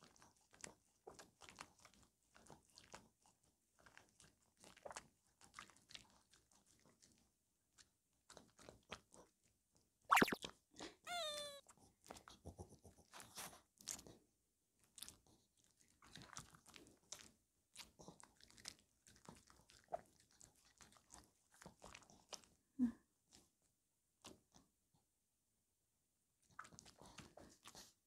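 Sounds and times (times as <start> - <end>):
dog chewing strawberry: 0.0 - 7.2, 15.0 - 22.6, 26.5 - 27.9
short falling squeak: 11.1 - 11.6.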